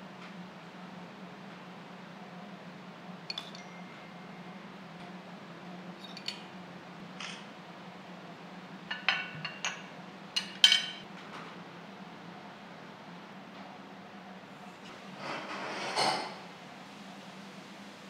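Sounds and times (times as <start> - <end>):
metal spoon clinking on ceramic: 3.3 - 3.8.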